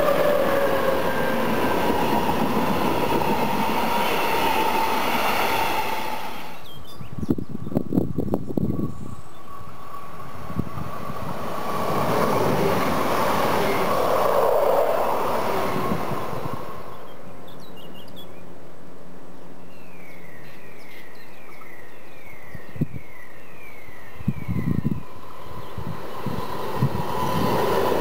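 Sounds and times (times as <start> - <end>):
electric train passing: 0.0 - 6.8, 7.5 - 17.5, 23.9 - 28.0.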